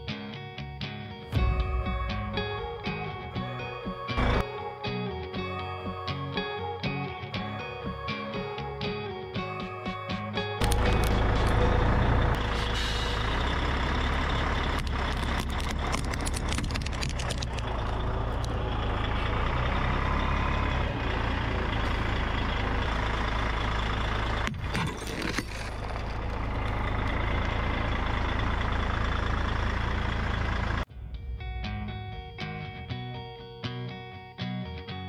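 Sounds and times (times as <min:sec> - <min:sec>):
truck engine running: 0:01.4 - 0:04.6, 0:09.4 - 0:33.3
tyre crunching glass baubles: 0:24.6 - 0:26.1.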